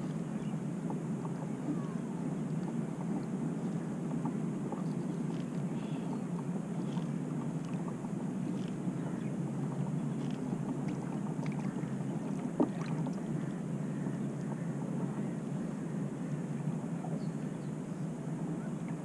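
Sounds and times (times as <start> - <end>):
rush of water and air: 0.0 - 19.0.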